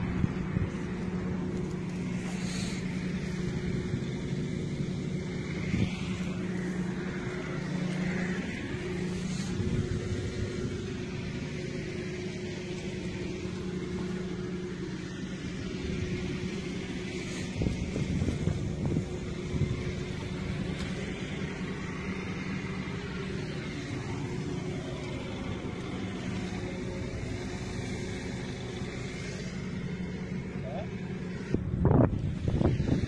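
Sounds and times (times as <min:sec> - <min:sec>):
engine drone: 0:00.0 - 0:33.0
wind gusts on microphone: 0:17.3 - 0:20.8, 0:31.5 - 0:33.0.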